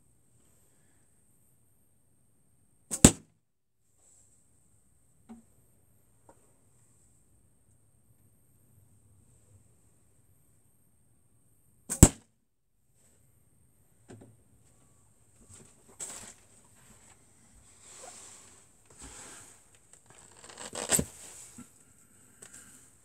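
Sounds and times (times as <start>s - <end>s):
arrows pulled from target: 2.9s - 3.2s
arrow striking foam target: 2.9s - 3.3s, 11.9s - 12.3s
scuffing and shuffling: 14.6s - 21.7s.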